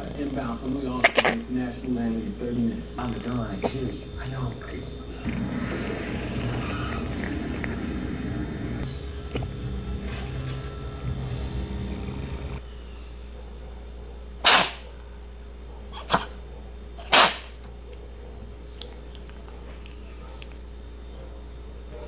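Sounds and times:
cat sneezing: 1.0 - 1.4, 14.4 - 15.0, 15.9 - 16.4, 17.0 - 17.6.

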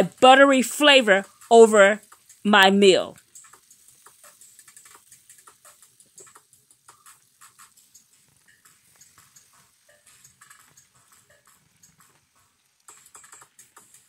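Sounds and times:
butter popping and crackling: 1.2 - 2.4, 3.2 - 14.0.

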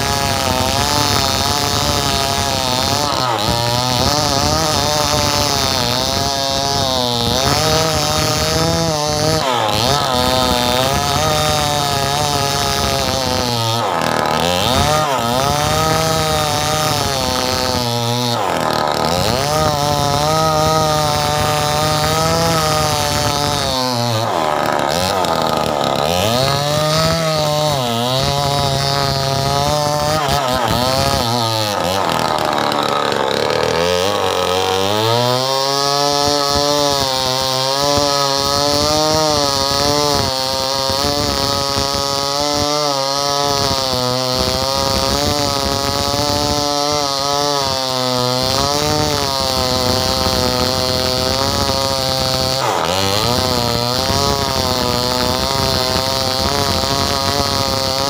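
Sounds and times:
chainsaw cutting tree trunk: 0.0 - 58.0.

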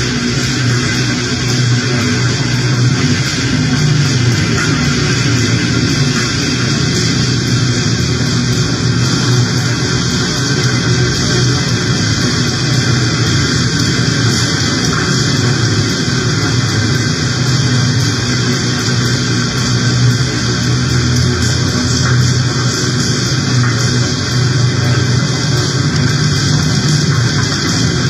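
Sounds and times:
distorted noise music: 0.0 - 28.0
low droning hum: 0.0 - 28.0.

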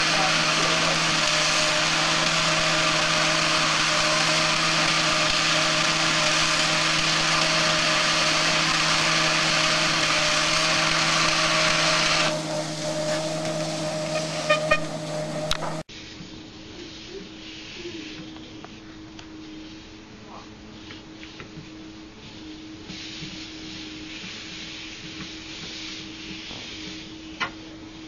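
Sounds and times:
treadmill motor hum: 0.0 - 15.9
treadmill belt hiss: 0.0 - 28.0.

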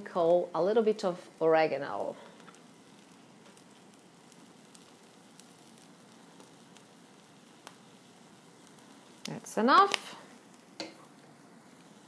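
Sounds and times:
omelet sizzling in a pan: 0.0 - 12.0
small crackles: 0.0 - 12.0.

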